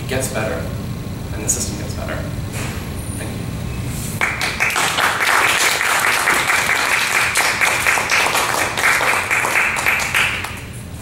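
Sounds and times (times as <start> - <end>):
audience applauding: 4.2 - 10.6.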